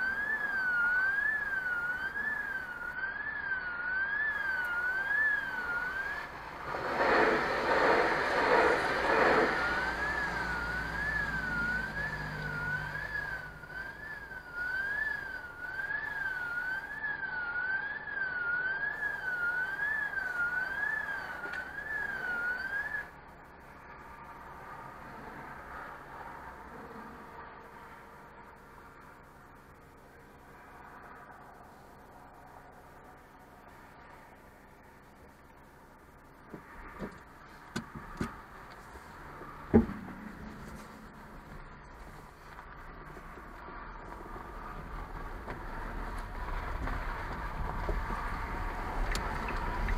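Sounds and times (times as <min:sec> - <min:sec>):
warbling electronic warning tone: 0:00.0 - 0:06.4, 0:09.5 - 0:23.0
rushing noise: 0:00.0 - 0:23.2, 0:36.6 - 0:49.9.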